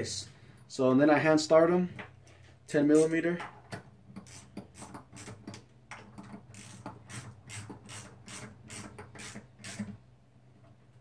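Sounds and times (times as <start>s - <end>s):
ratchet wrench clicking: 4.2s - 5.4s, 6.5s - 9.8s.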